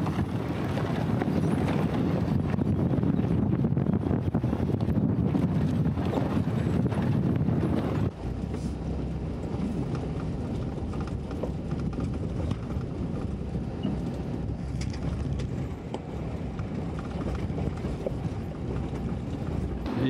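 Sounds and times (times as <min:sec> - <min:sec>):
vehicle engine and tyre noise: 0:00.0 - 0:20.0
stones clicking under tyres: 0:04.7 - 0:19.9.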